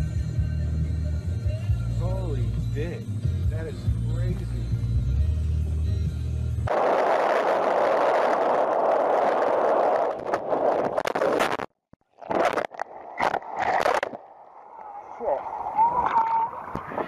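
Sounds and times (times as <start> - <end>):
wind and water rushing: 6.7 - 11.6, 12.2 - 17.0
water splashing over camera: 6.7 - 17.0.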